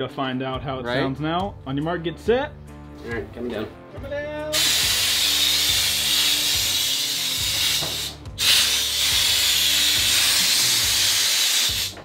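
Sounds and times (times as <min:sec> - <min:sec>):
loud hiss of air: 0:04.6 - 0:12.0.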